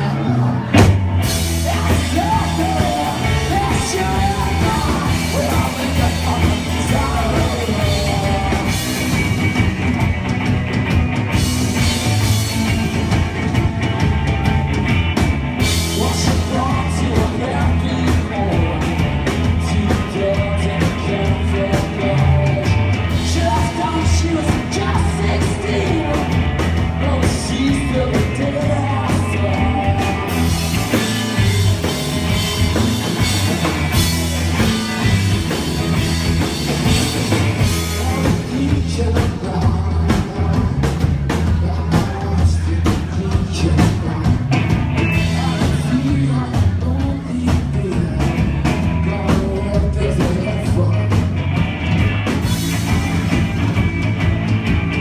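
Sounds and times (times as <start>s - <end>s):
man singing: 0.0s - 9.6s, 15.6s - 33.3s, 36.8s - 51.3s
drum kit: 0.0s - 55.0s
electric guitars: 0.0s - 55.0s.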